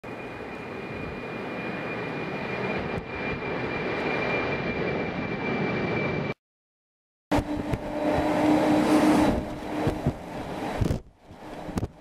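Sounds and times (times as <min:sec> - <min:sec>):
jet engine roar: 0:00.0 - 0:06.4, 0:07.3 - 0:12.0
high jet whine: 0:07.3 - 0:12.0.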